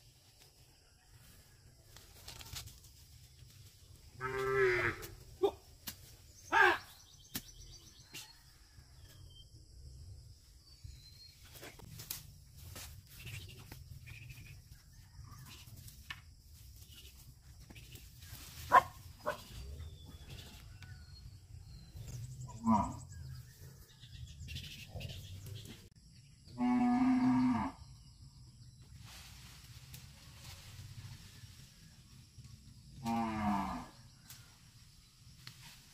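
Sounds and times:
cow mooing: 22.5 - 23.0, 33.0 - 33.9.

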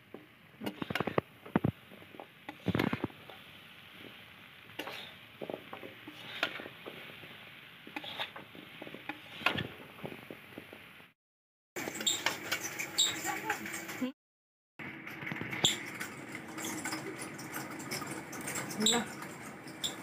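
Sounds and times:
spoon scraping in a bowl: 0.6 - 1.2, 2.5 - 3.4, 4.0 - 9.8, 11.8 - 14.0, 15.6 - 20.0.

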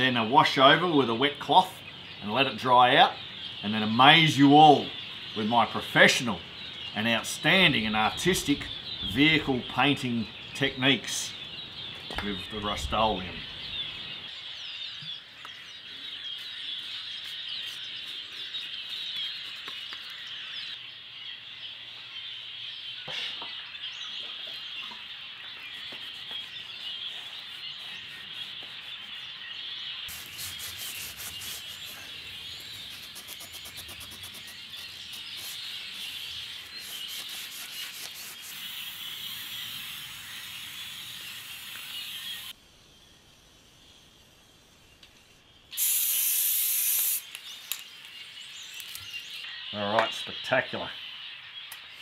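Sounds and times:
birds chirping: 0.0 - 52.0
paintbrush scrubbing metal: 30.1 - 42.4.

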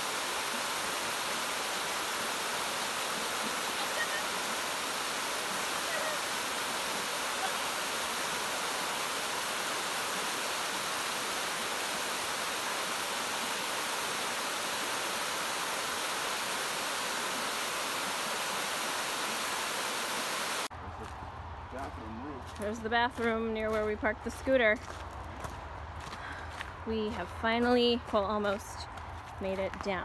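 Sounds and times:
waterfall rushing: 0.0 - 20.7.

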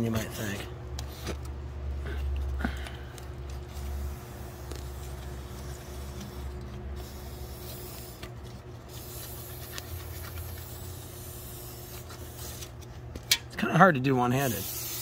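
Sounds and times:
steady low hum: 0.0 - 15.0
aerosol can spraying: 3.7 - 8.3, 8.9 - 12.8, 14.3 - 15.0.

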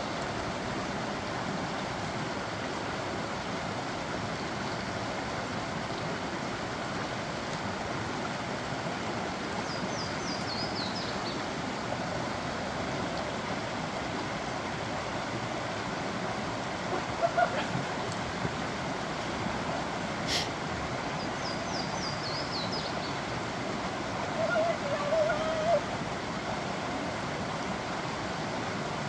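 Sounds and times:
creek rushing over rocks: 0.0 - 29.0
songbird singing: 9.6 - 11.5, 21.2 - 23.3.

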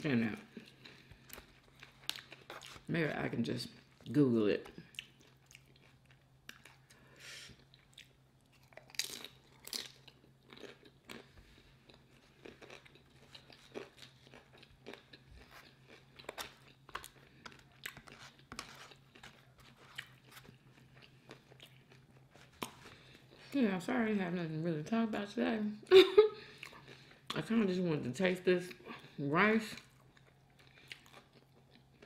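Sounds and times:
tortilla chips crunching: 0.5 - 2.9, 7.6 - 23.5, 29.8 - 32.0.

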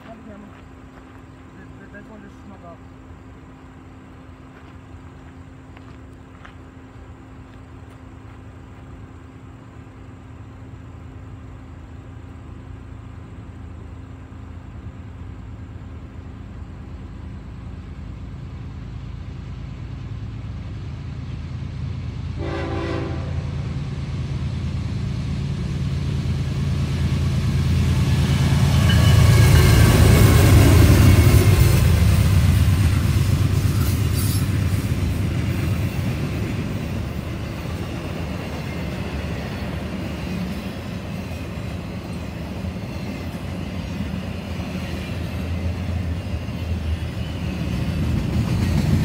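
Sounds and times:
diesel locomotive engine rumble: 0.0 - 49.0
train wheels on rails: 0.0 - 49.0
train horn blast: 22.4 - 23.7.

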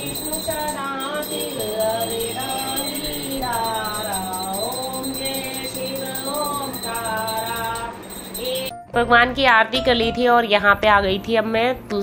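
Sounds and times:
small bell ringing rapidly: 0.0 - 8.8
person singing a hymn: 0.0 - 9.1.

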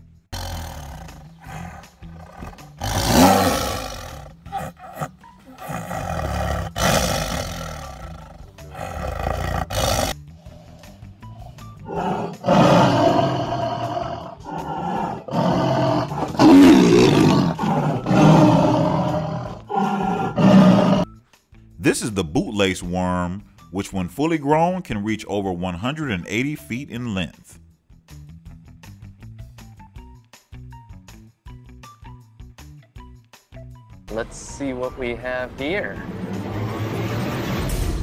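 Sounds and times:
background music: 0.0 - 38.0
tigers growling and snarling: 0.3 - 21.1.

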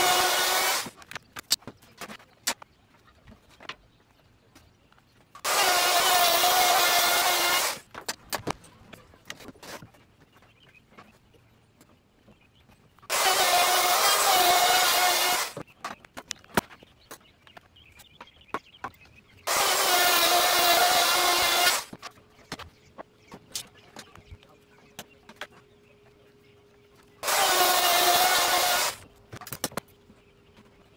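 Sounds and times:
router cutting plywood: 0.0 - 0.9, 5.4 - 7.8, 13.1 - 15.6, 19.5 - 22.0, 27.2 - 29.0.

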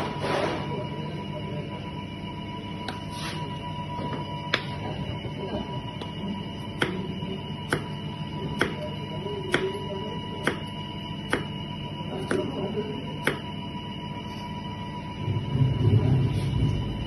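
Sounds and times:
knife chopping on plastic board: 6.8 - 7.0, 7.7 - 8.0, 8.6 - 8.8, 9.5 - 9.8, 10.4 - 10.7, 11.3 - 11.6, 12.2 - 12.5, 13.2 - 13.5.

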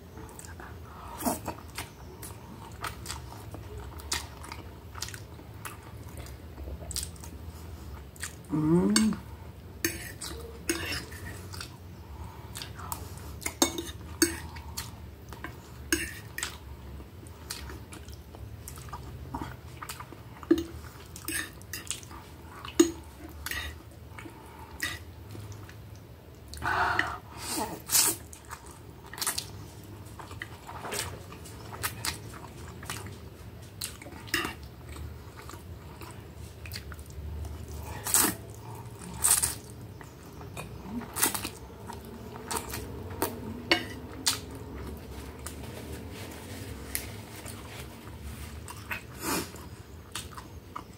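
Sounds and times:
chewing: 0.1 - 9.3, 9.9 - 50.9
cutlery scraping on plate: 9.8 - 11.4.

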